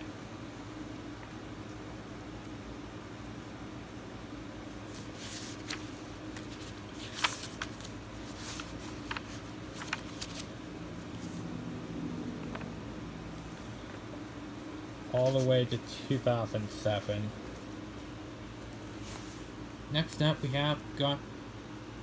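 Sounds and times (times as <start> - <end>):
comic book pages turning: 4.8 - 11.4, 15.1 - 17.6.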